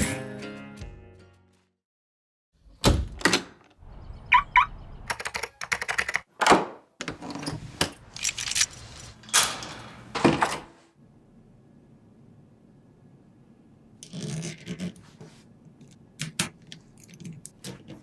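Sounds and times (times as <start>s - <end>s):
cabinet doors closing: 9.3s - 10.8s.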